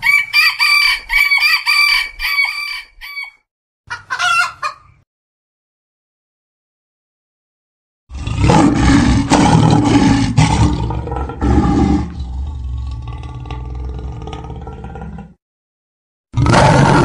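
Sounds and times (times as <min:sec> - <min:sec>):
lion roaring: 0:08.1 - 0:15.4, 0:16.4 - 0:17.0.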